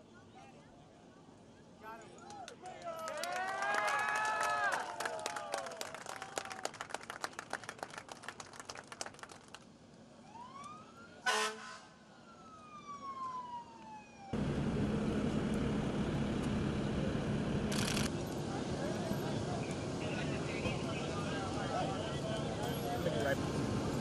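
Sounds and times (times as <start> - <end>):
siren wailing: 10.2 - 11.4, 12.1 - 14.4
steady low hum: 14.4 - 21.7.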